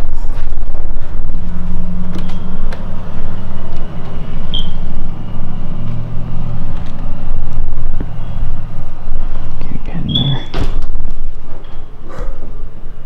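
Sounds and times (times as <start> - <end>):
low mechanical drone: 0.0 - 13.0.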